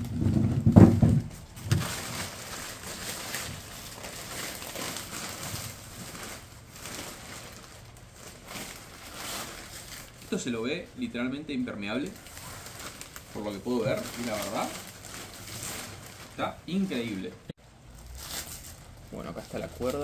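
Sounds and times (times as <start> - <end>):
blanket fabric rustling: 1.4 - 10.8, 11.8 - 17.4.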